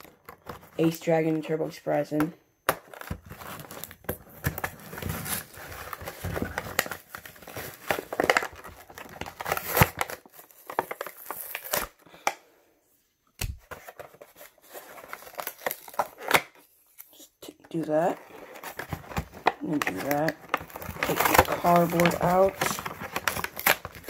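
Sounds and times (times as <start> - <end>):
plastic packaging crinkling: 2.8 - 12.0, 13.6 - 17.2, 17.8 - 24.0.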